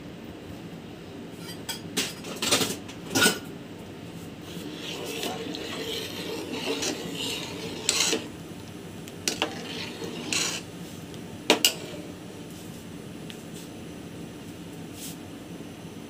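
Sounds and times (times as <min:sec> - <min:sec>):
spoon clinking and scraping in pot: 0:04.5 - 0:08.4, 0:09.3 - 0:10.7, 0:11.5 - 0:12.1.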